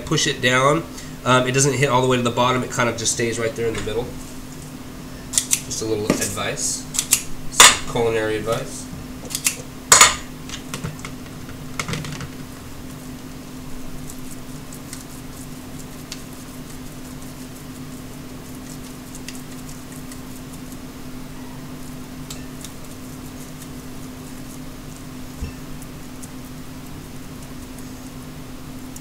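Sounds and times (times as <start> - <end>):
low electrical hum: 0.0 - 29.0
hands pressing meat mixture: 10.7 - 29.0.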